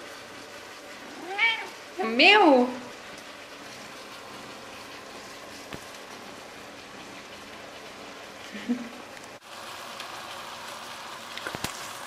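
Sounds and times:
meat sizzling in oil: 0:00.0 - 0:08.6, 0:09.4 - 0:12.0.

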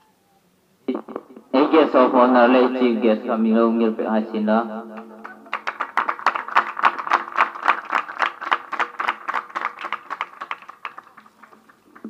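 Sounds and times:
crowd clapping in rhythm: 0:04.9 - 0:12.0.

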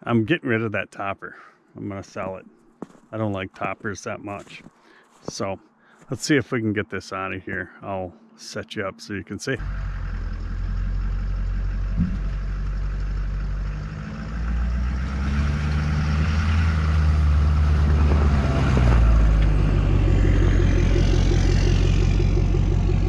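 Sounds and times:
pickup truck engine revving: 0:09.6 - 0:23.0.

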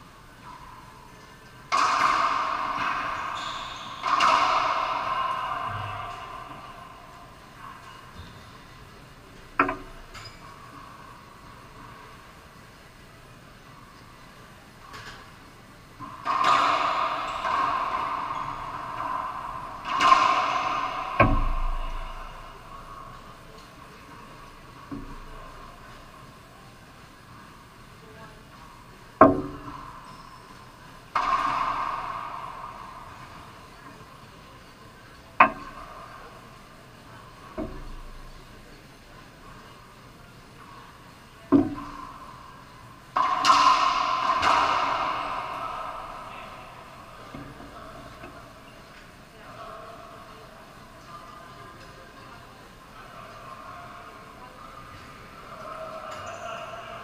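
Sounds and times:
racquetball hits echoing: 0:01.6 - 0:08.4, 0:09.6 - 0:10.5, 0:16.0 - 0:24.1, 0:29.2 - 0:30.4, 0:31.1 - 0:34.6, 0:35.4 - 0:36.4, 0:37.4 - 0:38.3, 0:41.4 - 0:48.7.

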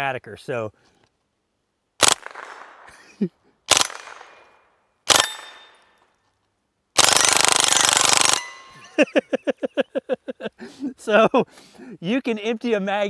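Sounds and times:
suppressed rifle automatic bursts: 0:02.0 - 0:02.9, 0:03.7 - 0:04.5, 0:05.1 - 0:05.7, 0:07.0 - 0:08.6.

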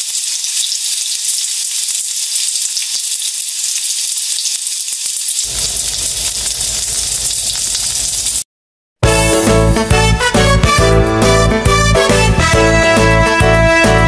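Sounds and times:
rice sizzling in a frying pan: 0:00.0 - 0:08.4
upbeat music: 0:09.0 - 0:14.0.

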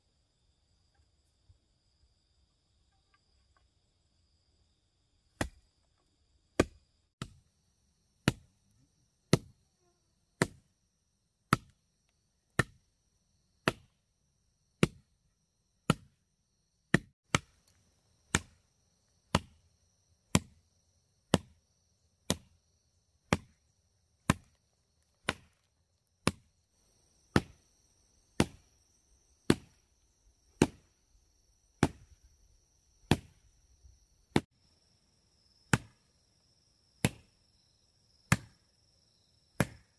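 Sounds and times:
high insect tone: 0:00.0 - 0:16.9, 0:17.6 - 0:39.9
insects buzzing: 0:17.5 - 0:39.9
chopping blows: 0:31.8 - 0:32.2.

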